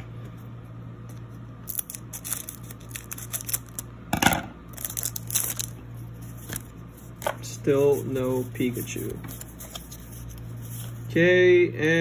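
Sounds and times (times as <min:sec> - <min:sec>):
foil wrapper crinkling: 0:01.6 - 0:03.9, 0:04.7 - 0:06.8
foil wrapper ripping: 0:01.6 - 0:03.9, 0:04.7 - 0:05.8.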